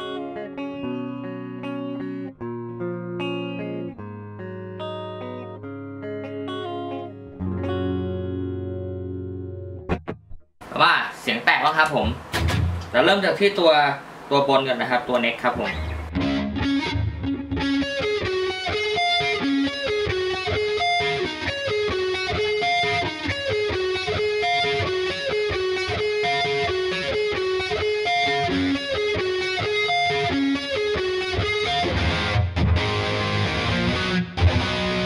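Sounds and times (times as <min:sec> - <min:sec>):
distorted electric guitar riff: 0:00.0 - 0:10.2, 0:15.5 - 0:35.0.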